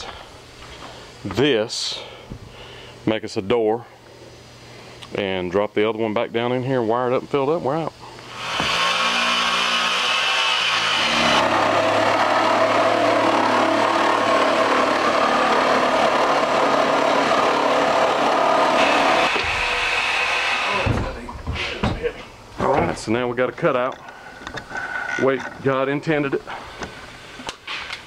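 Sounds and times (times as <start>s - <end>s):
power saw cutting wood: 8.3s - 21.8s.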